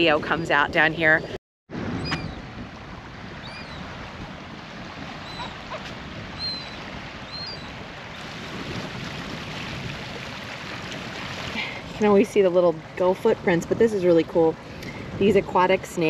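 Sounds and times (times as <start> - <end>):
wind: 0.0 - 16.0
bird chirps: 5.2 - 5.6, 6.4 - 7.7
lapping water: 8.2 - 13.1.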